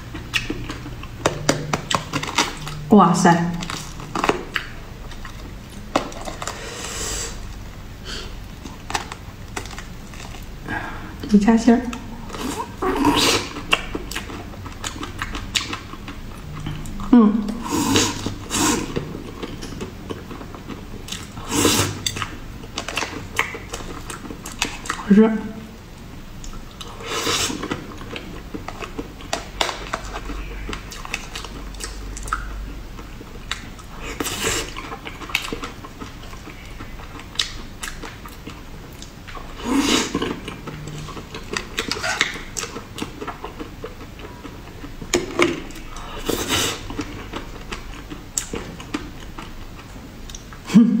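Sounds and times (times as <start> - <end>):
person chewing: 0.0 - 2.9, 3.5 - 11.3, 11.9 - 25.1, 25.9 - 50.6.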